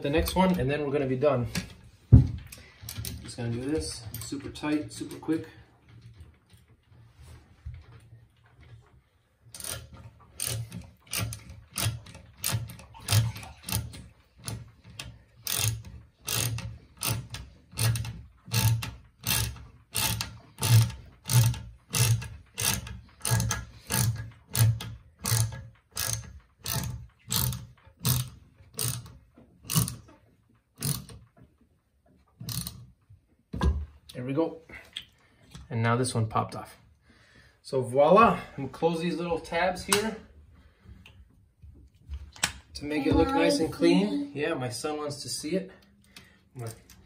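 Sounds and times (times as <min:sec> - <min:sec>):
ratchet wrench clicking: 0:15.0 - 0:29.1, 0:32.5 - 0:32.8.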